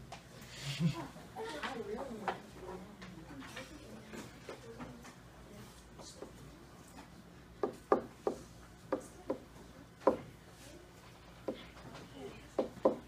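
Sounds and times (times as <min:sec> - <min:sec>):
pen tapping on whiteboard: 0:07.6 - 0:10.2.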